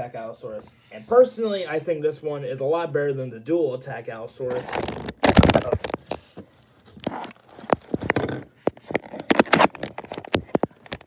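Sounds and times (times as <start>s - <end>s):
plastic figures clicking and knocking: 4.5s - 6.2s, 7.0s - 11.0s.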